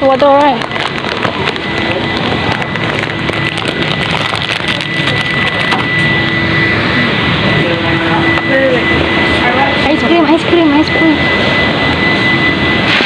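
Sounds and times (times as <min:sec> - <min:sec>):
high-pitched whine: 0:00.0 - 0:13.0
mechanical hum and hiss: 0:10.7 - 0:13.0.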